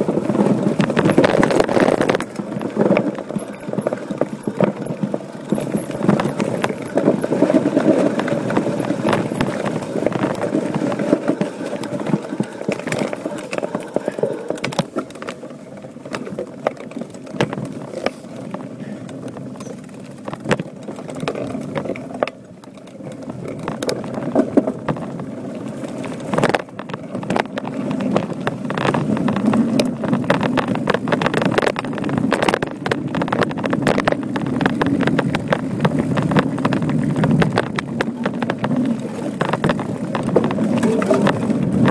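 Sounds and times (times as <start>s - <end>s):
bike clattering and rattling: 0.0s - 41.9s
bike tyres rumbling on dirt: 0.0s - 41.9s.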